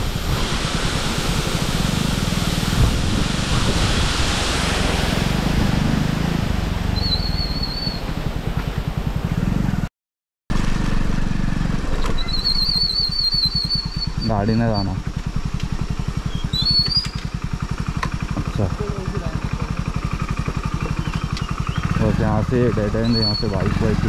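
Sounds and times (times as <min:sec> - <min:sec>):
vehicle engine rumble: 0:00.0 - 0:09.9, 0:10.5 - 0:24.0
wind on microphone: 0:00.0 - 0:09.9.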